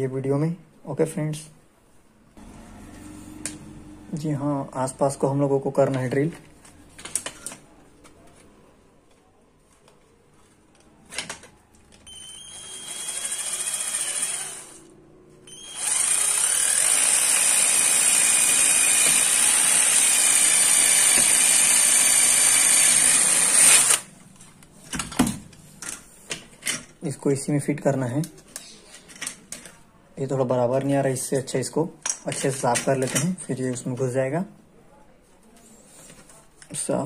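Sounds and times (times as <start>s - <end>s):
cordless drill whining through plastic: 12.1s - 14.9s, 15.5s - 24.1s.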